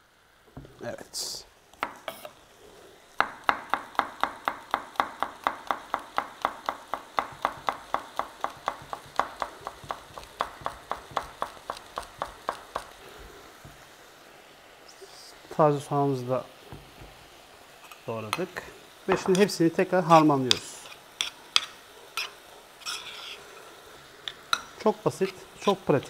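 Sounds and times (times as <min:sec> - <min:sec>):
knife taps: 0:03.2 - 0:12.9, 0:19.1 - 0:19.4.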